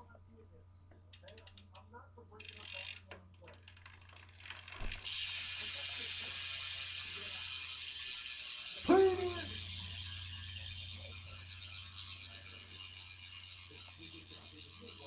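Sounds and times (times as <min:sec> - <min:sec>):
bicycle hub ratchet buzzing: 0:01.1 - 0:01.8, 0:02.4 - 0:15.0
scattered clicks: 0:01.1 - 0:04.8.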